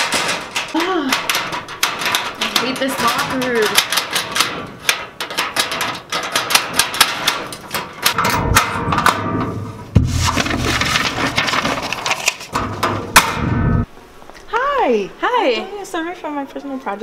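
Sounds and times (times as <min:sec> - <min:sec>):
metal locker latch clicking and rattling: 0:00.0 - 0:09.7
locker opening: 0:00.0 - 0:13.9.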